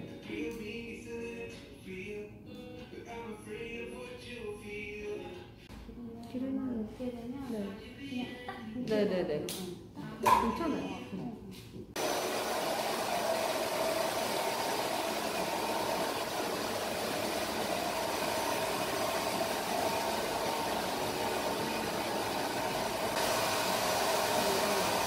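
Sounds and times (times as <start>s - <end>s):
hair dryer running: 12.0s - 25.0s.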